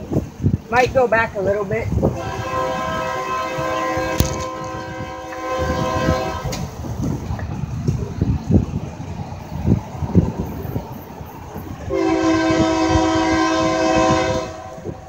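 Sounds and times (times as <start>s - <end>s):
train air horn chord: 2.2s - 6.7s, 11.9s - 15.0s.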